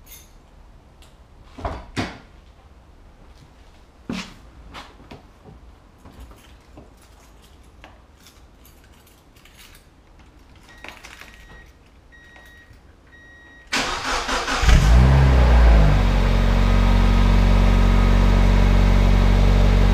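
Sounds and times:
short beeps: 10.7s - 13.7s
car engine exhaust note: 14.7s - 19.9s.

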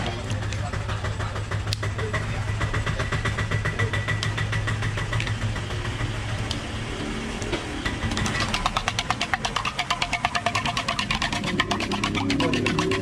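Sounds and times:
low motor hum: 0.0s - 13.0s
knife tapping eggs on steel mug: 8.2s - 13.0s.

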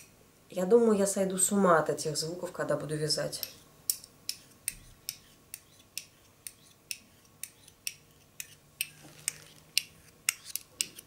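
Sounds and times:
metal knitting needles clicking: 3.4s - 11.0s.

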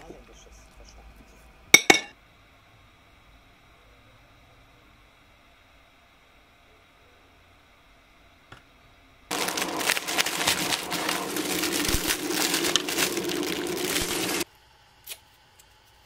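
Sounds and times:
dry food crushing crackle: 9.3s - 14.4s
plastic crinkling: 9.3s - 14.4s.

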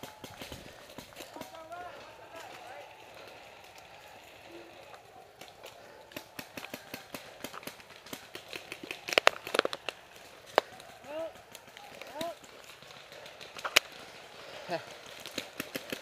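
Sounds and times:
footsteps in dry leaves and twigs: 0.0s - 16.0s.

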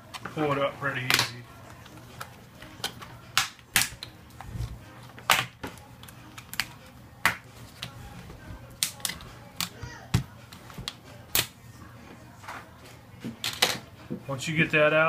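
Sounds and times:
plastic clips snapping loose: 1.0s - 4.2s, 5.2s - 8.0s, 8.8s - 10.2s, 10.8s - 11.5s.

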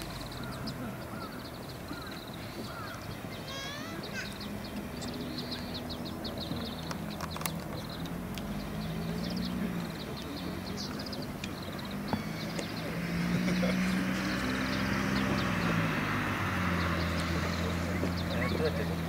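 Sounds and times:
small birds chirping: 0.0s - 19.0s
traffic engine hum: 0.0s - 19.0s.

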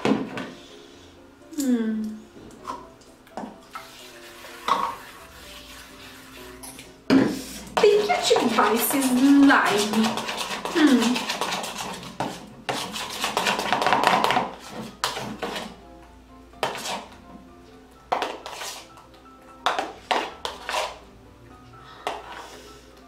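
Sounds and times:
faint background music: 0.0s - 23.0s
spatula scraping slime in bowl: 3.7s - 15.8s, 16.6s - 17.2s, 18.2s - 19.0s, 19.7s - 21.0s.

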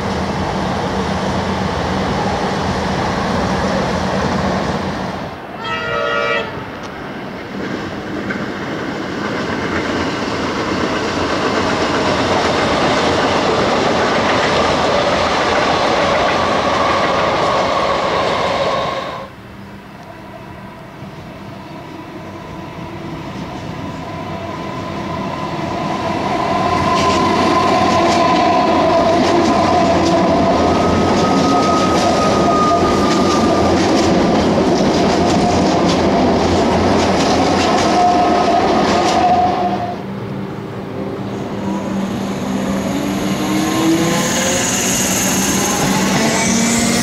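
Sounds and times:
train whining tones: 1.6s - 7.6s, 8.3s - 47.0s
train wheels clattering over rail joints: 8.2s - 17.5s, 29.1s - 39.2s.

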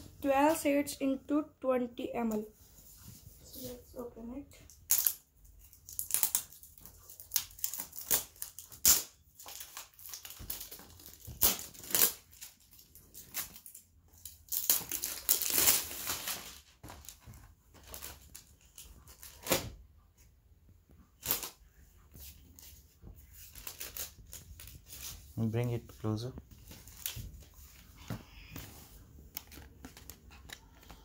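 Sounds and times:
plastic wrap crinkling: 4.9s - 19.7s, 22.2s - 27.8s.

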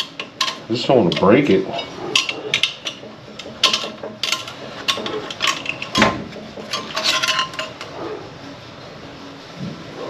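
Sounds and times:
metallic clicks and clinks: 0.0s - 7.9s.

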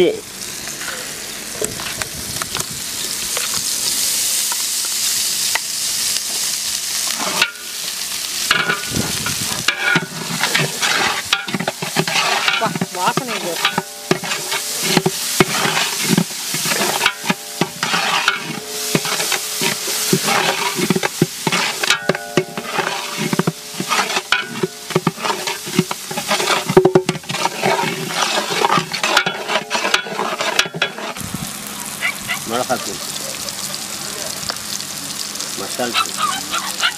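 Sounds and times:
spices sizzling in oil: 0.0s - 36.9s
metal spatula scraping pot: 7.1s - 7.6s, 8.5s - 31.2s.

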